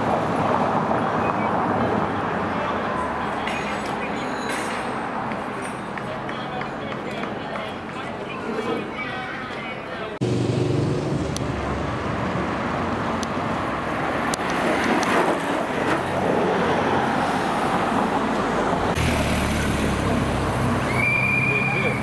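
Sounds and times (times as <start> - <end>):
cyclist and car passing by: 10.2 - 22.0.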